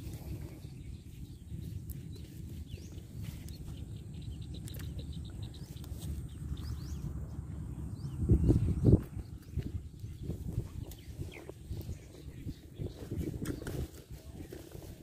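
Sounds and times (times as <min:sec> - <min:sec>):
small birds chirping: 0:00.0 - 0:15.0
wind buffeting microphone: 0:00.0 - 0:15.0.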